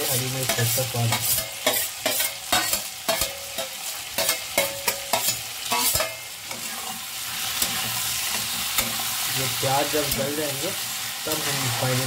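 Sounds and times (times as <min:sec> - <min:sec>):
spatula clinking on steel: 0:00.0 - 0:06.9, 0:07.6 - 0:09.1
oil sizzling: 0:00.0 - 0:12.0.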